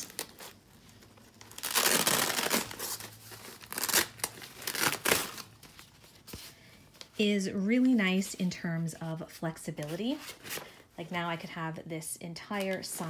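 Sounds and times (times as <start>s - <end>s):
cloth tearing rasp: 1.6s - 5.4s.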